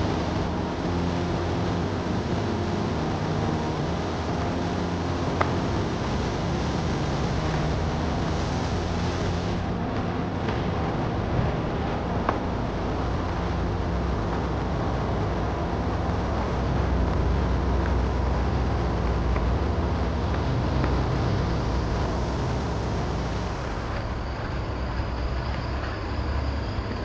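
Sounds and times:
outdoor background rumble: 0.0s - 27.0s.

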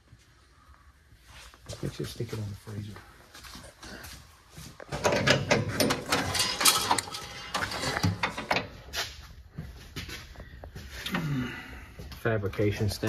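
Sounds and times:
mechanical clicks and rattles: 5.0s - 8.8s.

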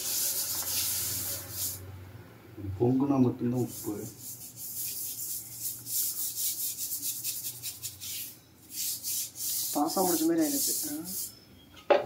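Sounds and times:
rasping scrubbing strokes: 3.5s - 11.4s.

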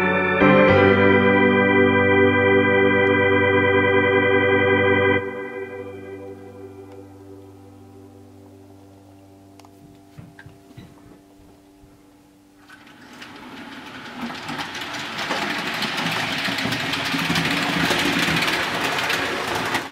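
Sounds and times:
model train wheels rumbling: 12.7s - 19.9s.

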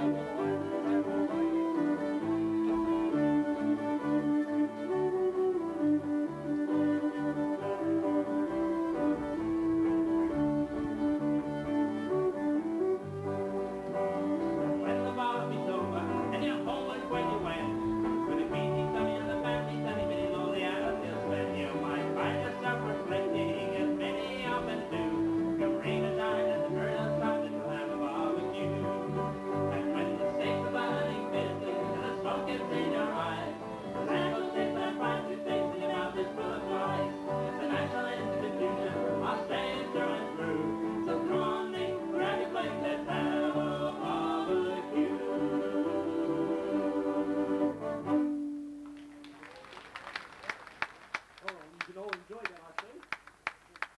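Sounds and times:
person singing: 0.0s - 5.2s, 14.2s - 48.4s
walking bass line: 0.0s - 49.2s
fiddles bowing: 0.0s - 49.9s.

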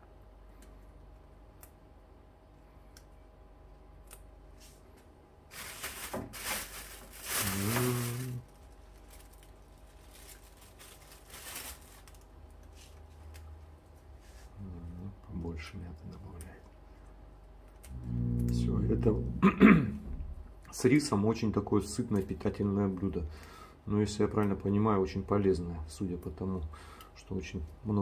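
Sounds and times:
leaves rustling and tearing: 5.5s - 13.5s
brief low hum: 17.8s - 20.7s.

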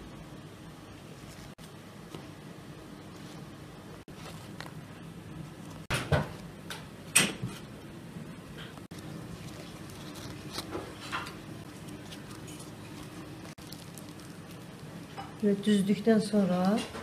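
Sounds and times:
low steady hum: 0.0s - 17.0s
kitchen knocks and clatters: 5.8s - 7.6s.

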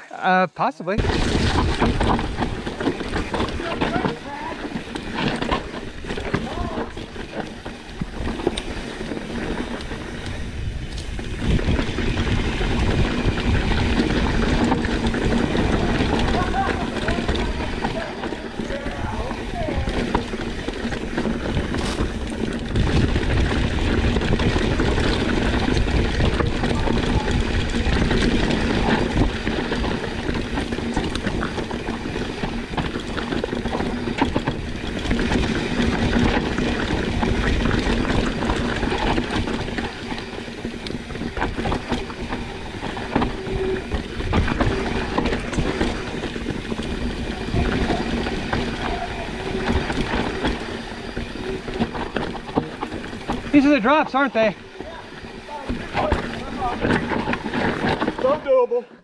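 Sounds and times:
bike rumbling and rattling: 0.9s - 59.0s
wind rushing on microphone: 8.0s - 52.5s.

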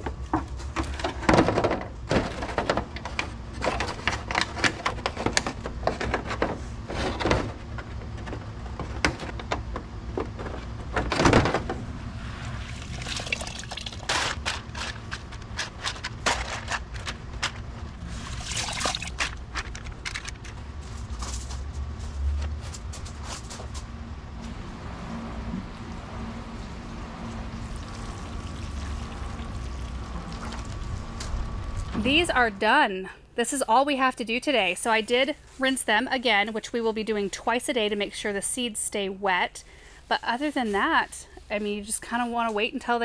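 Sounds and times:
water splashes and drips: 12.7s - 14.0s, 18.3s - 19.2s.

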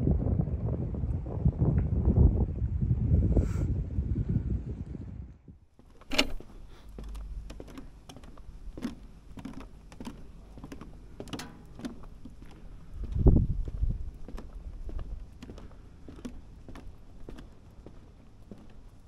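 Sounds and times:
footsteps on wooden boardwalk: 5.7s - 19.0s.

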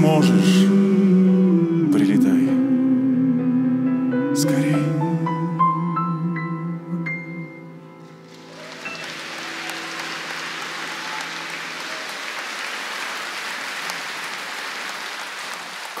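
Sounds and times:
male vocal group singing: 0.0s - 5.7s
audience applause: 8.2s - 16.0s.

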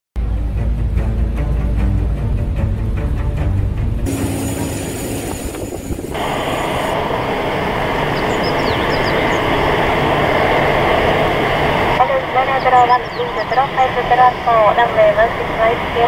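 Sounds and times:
jet engines rushing: 4.0s - 16.0s.

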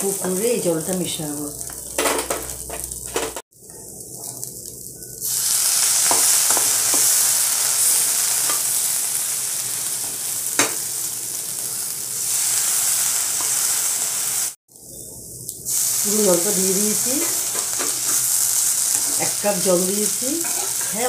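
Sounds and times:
loud sizzle in hot pan: 0.0s - 21.0s
spatula tapping pan: 6.0s - 7.2s.

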